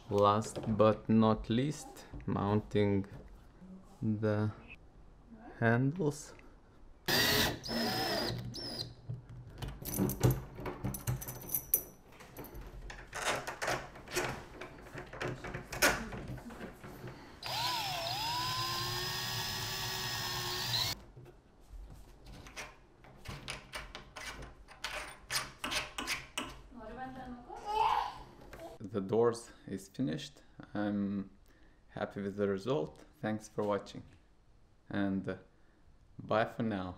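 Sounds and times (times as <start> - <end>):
cordless drill driving screws: 7.1 - 8.9, 17.4 - 21.0.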